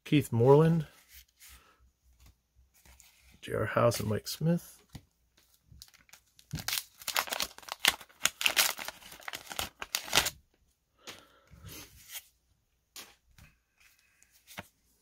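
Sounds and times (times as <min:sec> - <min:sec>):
cards rustling: 0:04.9 - 0:10.4
paper wrapper ripping: 0:05.8 - 0:10.4.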